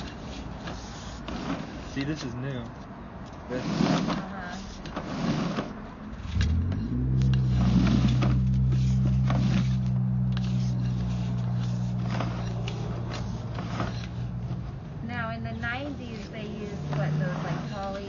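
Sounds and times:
knocks and scrapes: 0.0s - 18.0s.

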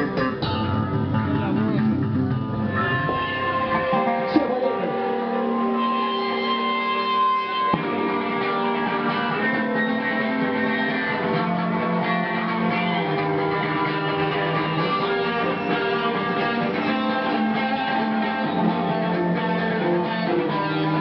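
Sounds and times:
electric guitars playing chords: 0.0s - 21.0s.

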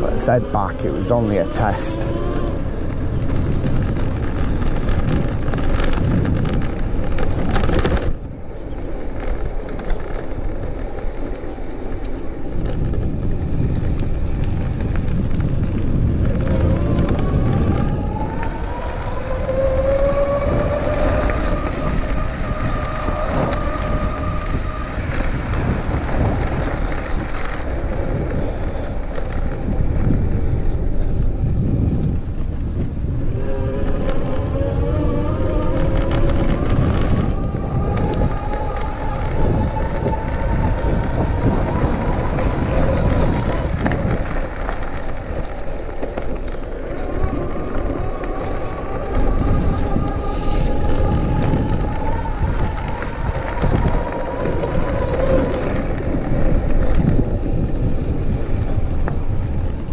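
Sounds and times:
tyres rumbling on gravel: 0.0s - 59.9s
wind on microphone: 0.0s - 59.9s
electric motor whine: 32.9s - 59.7s.

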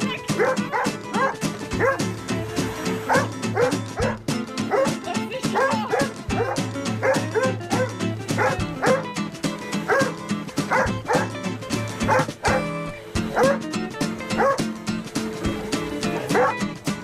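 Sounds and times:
background music: 0.0s - 17.0s
dog barking: 0.4s - 2.0s, 3.1s - 5.0s, 5.6s - 9.1s, 9.9s - 11.3s, 12.1s - 12.7s, 13.3s - 13.6s, 14.4s - 14.6s, 16.1s - 16.6s.

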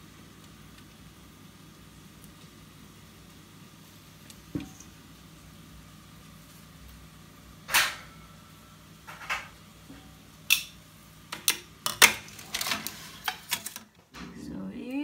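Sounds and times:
faint steady hum: 0.0s - 15.0s
metal baking tin clattering: 11.3s - 13.9s.

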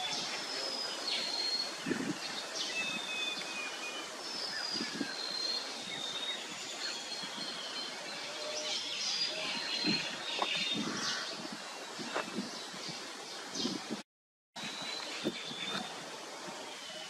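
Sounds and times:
birds calling: 4.5s - 13.9s, 14.6s - 16.0s.

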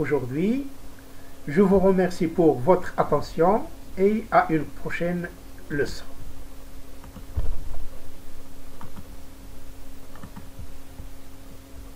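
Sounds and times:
electrical hum: 0.0s - 11.9s
computer mouse clicks: 7.0s - 7.4s, 8.8s - 9.1s, 10.1s - 11.1s.

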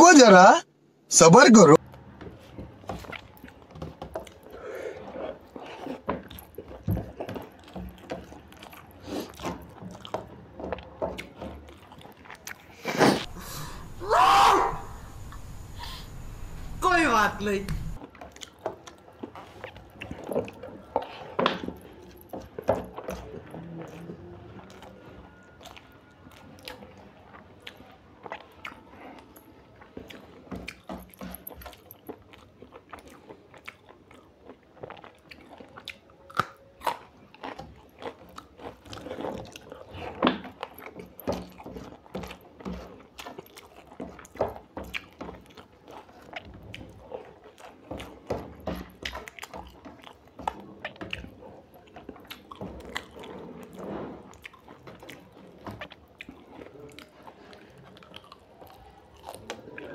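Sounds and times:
person chewing food: 1.8s - 16.7s, 17.8s - 59.9s
food crunching: 1.8s - 16.8s, 17.6s - 59.9s
wet mouth clicks and smacks: 29.9s - 59.9s.

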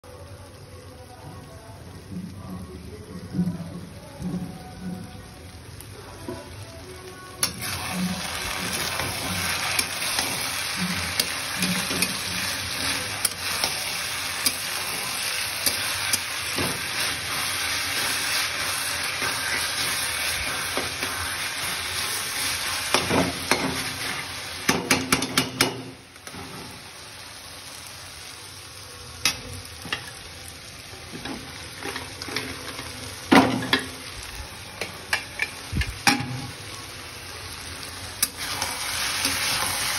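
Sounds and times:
onions sizzling in oil: 0.1s - 39.9s
metal spatula scraping pan: 7.5s - 24.2s.

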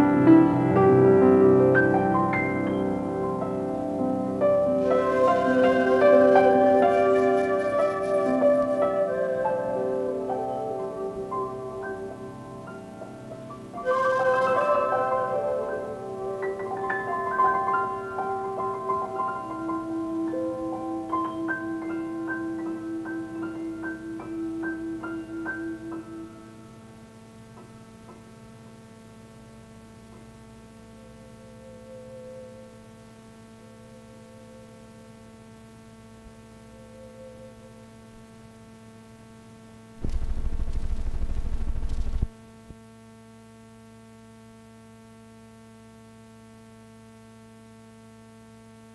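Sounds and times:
piano notes: 0.0s - 26.8s
electrical mains hum: 0.0s - 48.9s
tape hiss: 0.0s - 48.9s
loud rush of noise: 40.0s - 42.3s.

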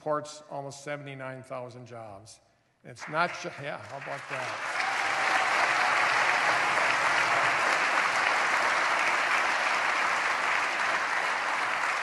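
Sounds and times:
large audience applauding: 3.0s - 12.0s.

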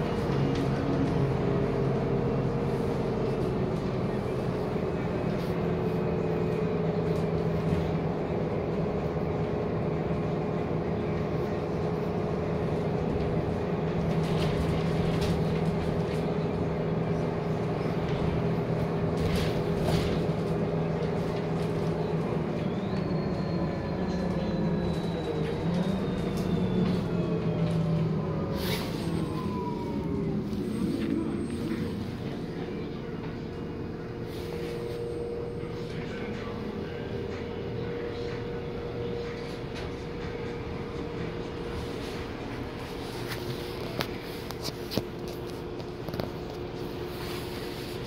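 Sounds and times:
bus drive hum and road rumble: 0.0s - 48.0s.

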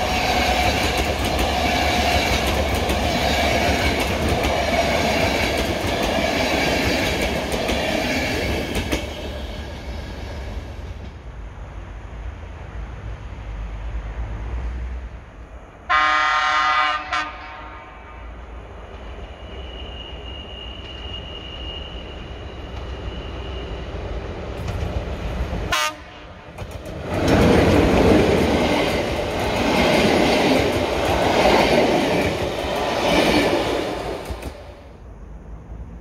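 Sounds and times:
train wheels and rail noise: 0.0s - 36.0s
train horn blast: 15.9s - 18.4s, 25.7s - 26.4s.

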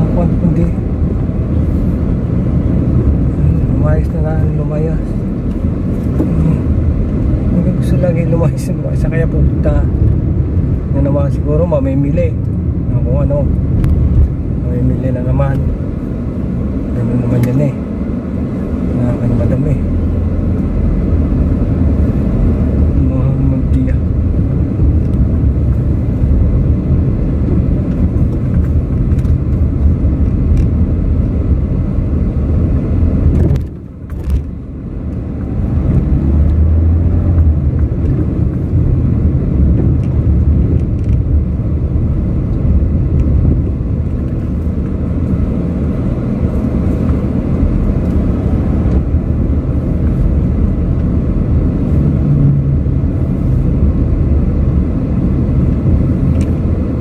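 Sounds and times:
car cabin engine and road rumble: 0.0s - 57.0s.

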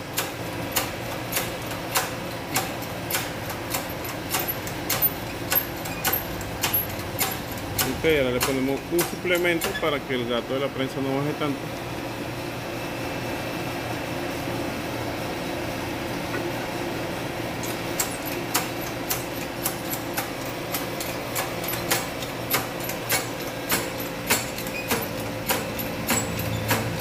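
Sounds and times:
steady hum: 2.3s - 18.2s.

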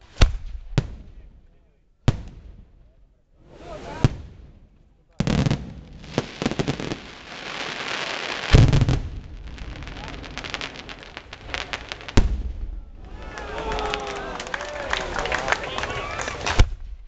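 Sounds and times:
sharp firework bang: 5.2s - 12.9s
fireworks crackling: 5.2s - 16.9s.

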